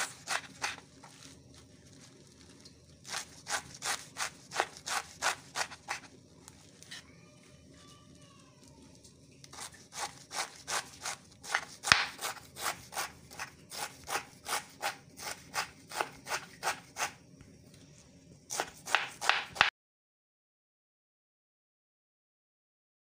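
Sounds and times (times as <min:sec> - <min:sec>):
knife chopping on wooden board: 0:00.0 - 0:00.8, 0:09.6 - 0:17.1, 0:18.5 - 0:19.7.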